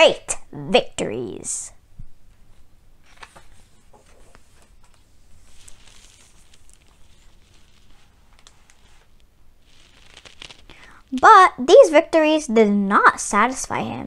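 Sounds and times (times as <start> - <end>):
paper page rustling: 2.4 - 11.0.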